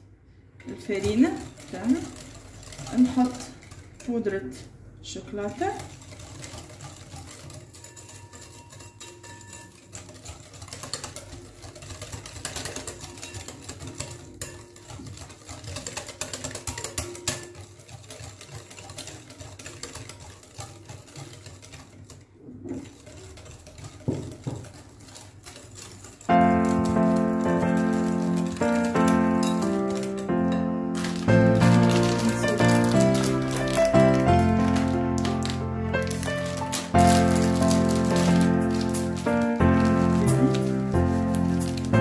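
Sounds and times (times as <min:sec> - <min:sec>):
whisk scraping glass bowl: 0:00.4 - 0:42.0
background music: 0:26.3 - 0:42.0.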